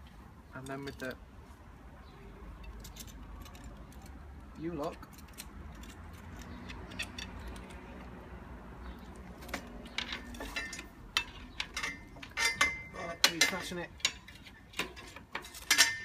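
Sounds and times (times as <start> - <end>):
metal lock clinking: 9.8 - 16.0
ringing metal clanks: 9.9 - 16.0.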